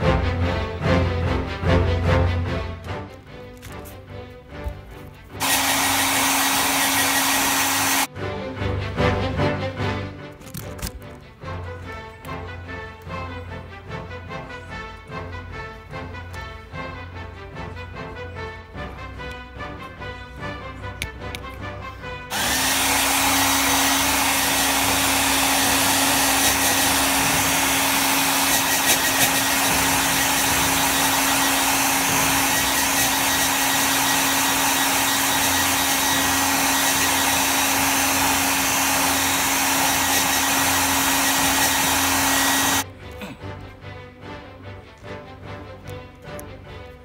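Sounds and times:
hair dryer blowing: 5.4 - 8.1, 22.3 - 42.9.

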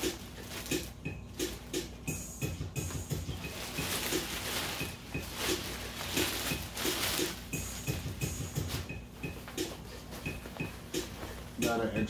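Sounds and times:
plastic bag crinkling: 0.0 - 1.7, 3.2 - 8.9.

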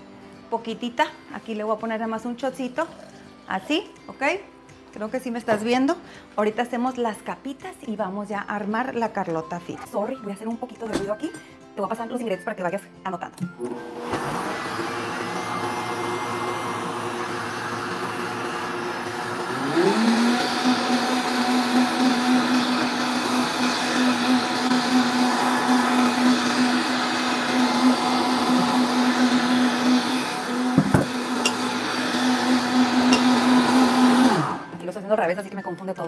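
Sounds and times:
blender motor running: 13.6 - 34.8.

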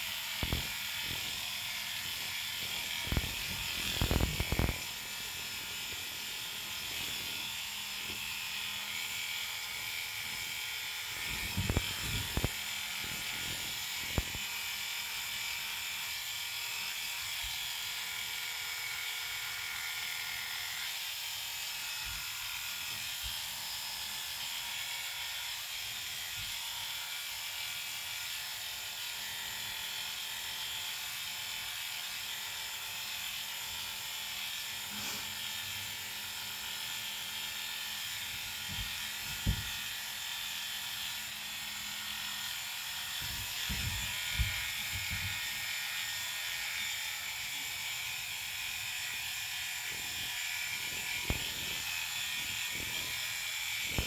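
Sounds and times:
electric clippers buzzing: 0.0 - 54.0.

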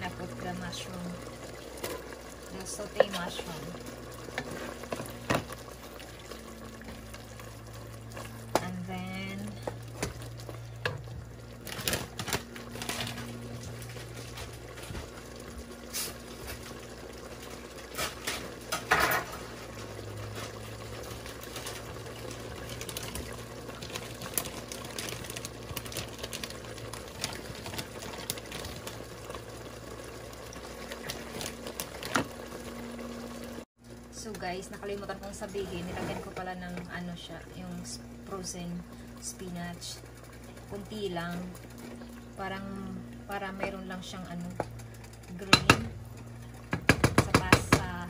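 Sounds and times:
steady low hum: 0.0 - 31.8
sauce bubbles popping: 20.7 - 33.6.

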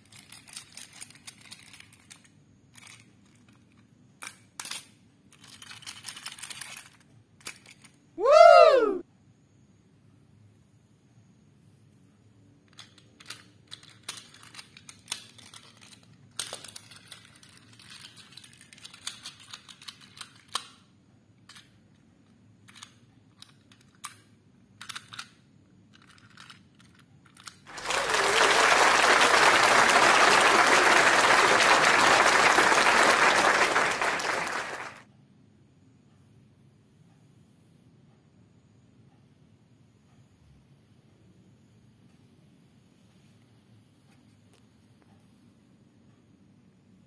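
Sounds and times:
toy engines clicking on plastic track: 0.0 - 8.0, 12.6 - 28.4.

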